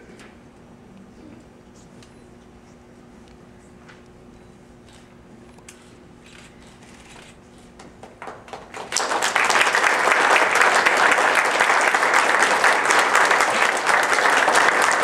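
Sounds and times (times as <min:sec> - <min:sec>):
audience applause: 0:08.0 - 0:15.0.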